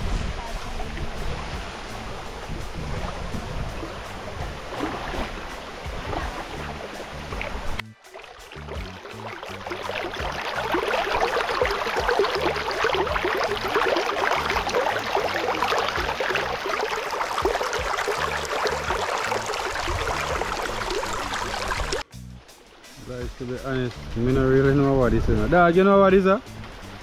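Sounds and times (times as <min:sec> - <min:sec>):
stream babbling over rocks: 0:03.8 - 0:22.0.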